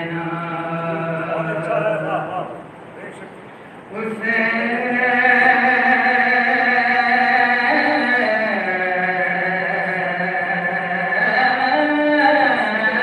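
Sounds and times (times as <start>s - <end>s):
men chanting a lament: 0.0s - 2.6s.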